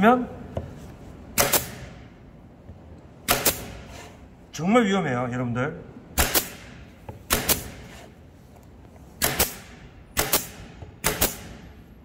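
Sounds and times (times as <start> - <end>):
pneumatic nailer firing: 1.4 - 2.0, 3.2 - 3.9, 6.2 - 8.0, 9.2 - 11.9.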